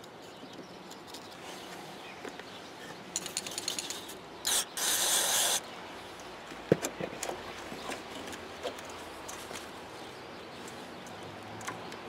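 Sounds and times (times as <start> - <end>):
aerosol spray hissing: 4.5 - 5.6.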